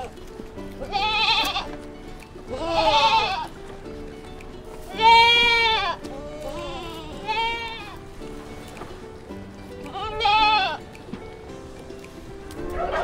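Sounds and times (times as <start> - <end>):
background music with sustained notes: 0.0 - 13.0
sheep bleating: 0.8 - 1.7, 2.5 - 3.5, 4.9 - 8.0, 9.9 - 10.8.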